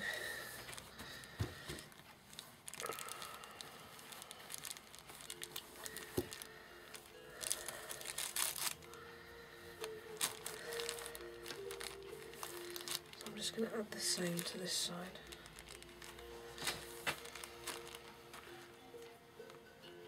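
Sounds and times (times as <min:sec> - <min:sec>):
fabric rustling and crinkling: 0:00.0 - 0:19.2
pan-pipe music: 0:04.2 - 0:20.0.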